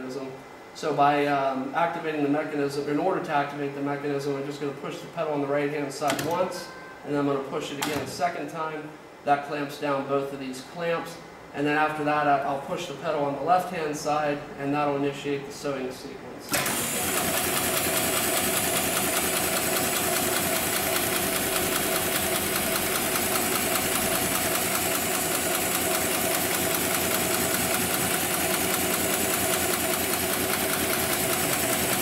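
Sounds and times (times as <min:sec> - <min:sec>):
sewing machine stitching: 0:16.5 - 0:32.0.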